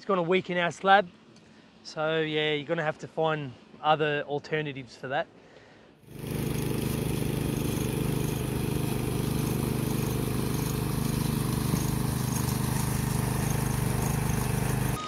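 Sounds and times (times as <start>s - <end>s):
small petrol engine running: 6.1s - 15.0s.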